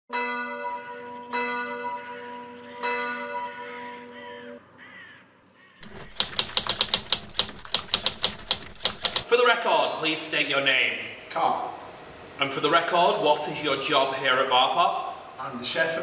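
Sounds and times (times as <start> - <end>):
church bell tolling: 0.1 - 4.6
crows cawing: 1.9 - 5.9
typewriter keys clacking: 5.8 - 9.3.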